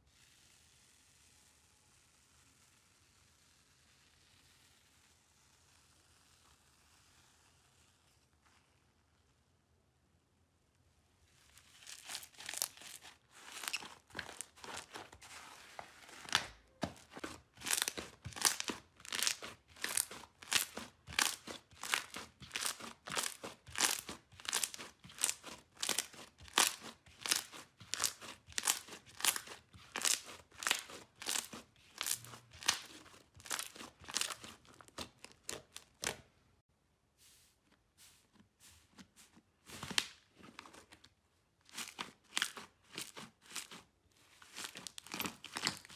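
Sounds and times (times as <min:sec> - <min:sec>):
slime crackling and popping: 0:11.7 - 0:15.1, 0:16.2 - 0:36.2.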